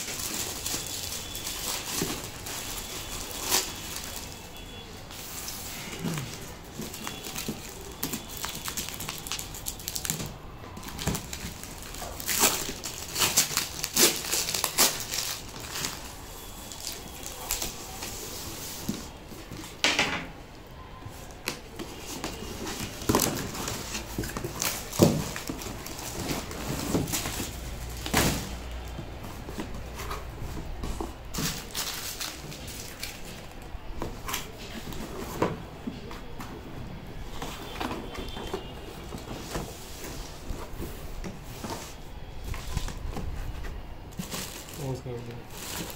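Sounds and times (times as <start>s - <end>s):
packing tape and cardboard ripping: 0.0s - 4.5s, 5.2s - 18.3s, 21.4s - 28.8s.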